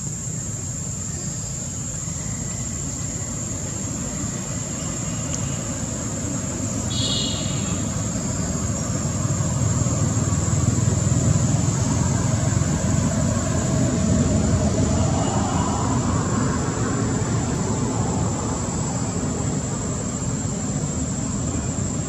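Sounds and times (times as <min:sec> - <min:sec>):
high-pitched insect drone: 0:00.0 - 0:22.0.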